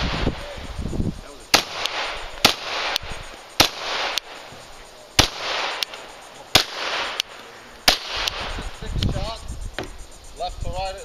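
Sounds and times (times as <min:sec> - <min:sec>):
pistol shots: 0:01.5 - 0:04.5, 0:05.2 - 0:08.8.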